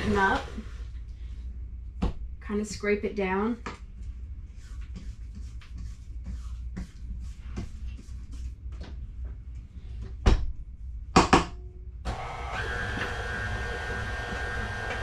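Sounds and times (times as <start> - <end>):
mixer head clanking: 12.1 - 15.0
mixer motor whine: 12.1 - 15.0.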